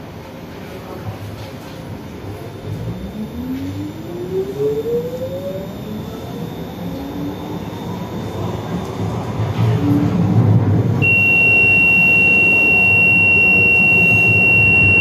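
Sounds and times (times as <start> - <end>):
tram electric drive whine: 0.0 - 15.0
wheels rumbling on rails: 2.4 - 11.0.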